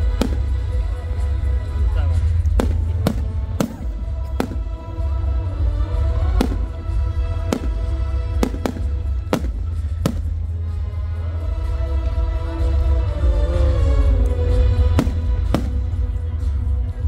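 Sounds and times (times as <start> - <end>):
music with heavy bass: 0.0 - 17.0
fireworks bangs: 2.5 - 4.8, 6.2 - 10.5, 14.9 - 16.0.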